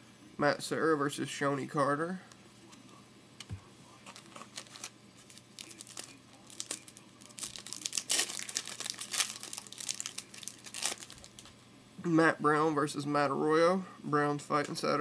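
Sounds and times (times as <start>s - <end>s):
card pack wrapper tearing and crinkling: 4.1s - 11.5s.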